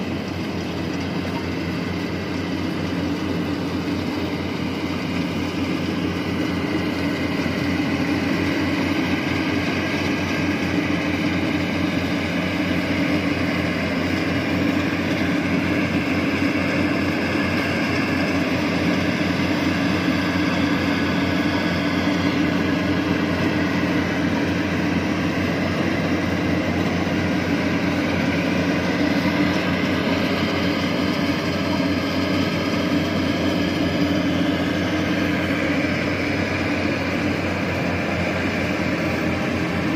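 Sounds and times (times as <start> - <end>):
combine harvester machinery drone: 0.0 - 39.9.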